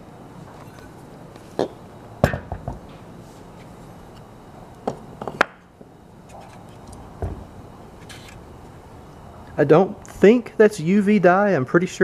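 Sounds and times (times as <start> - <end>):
knocks on wooden workbench: 2.2 - 2.8.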